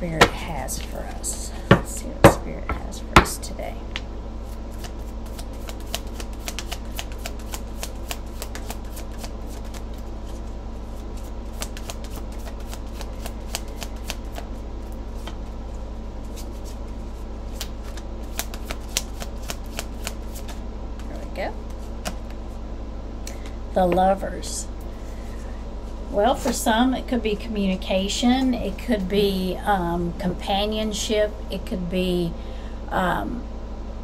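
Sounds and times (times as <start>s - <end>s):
steady low hum: 0.0s - 34.0s
cards being shuffled: 4.5s - 14.5s, 16.2s - 16.9s, 17.5s - 21.1s, 21.7s - 22.4s.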